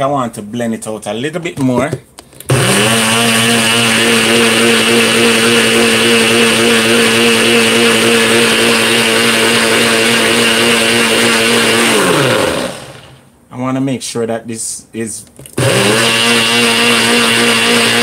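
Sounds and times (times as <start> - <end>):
blender motor running: 2.5 - 13.2, 15.5 - 18.0.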